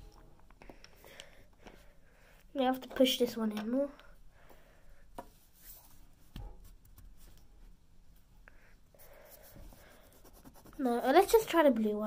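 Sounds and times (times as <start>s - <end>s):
faint rubbing: 9.0s - 11.6s.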